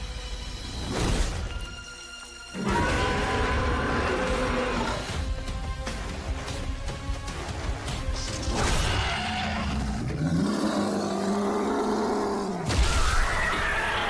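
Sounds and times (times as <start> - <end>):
long low creature roar: 2.6 - 5.1, 9.4 - 12.7
rising and falling ape howl: 2.6 - 5.1, 9.1 - 14.0.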